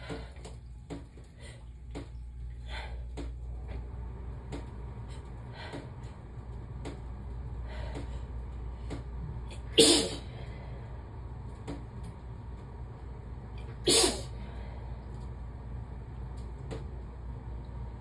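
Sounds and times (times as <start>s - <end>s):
person sneezing: 9.6s - 10.3s, 13.8s - 14.4s.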